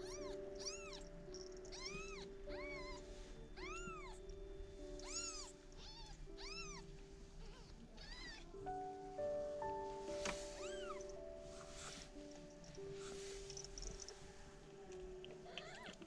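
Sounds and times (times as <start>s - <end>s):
kittens mewing: 0.0s - 4.2s, 5.0s - 8.5s, 15.5s - 16.0s.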